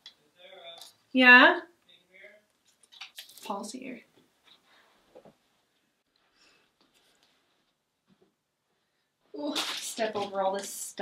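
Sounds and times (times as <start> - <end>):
faint handling sounds: 1.8 - 8.4.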